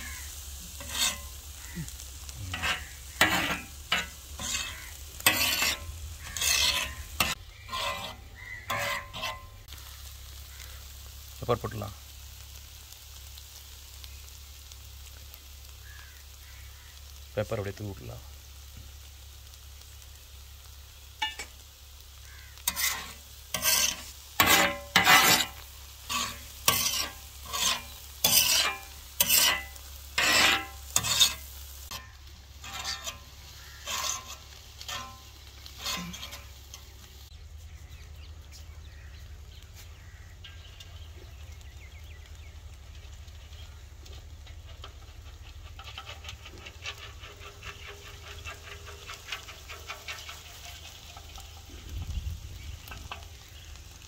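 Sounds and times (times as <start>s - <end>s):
metal spatula scraping griddle: 0.0s - 9.8s, 21.2s - 21.6s, 22.4s - 37.2s, 39.7s - 41.6s, 42.3s - 52.0s
food sizzling on griddle: 0.0s - 54.0s.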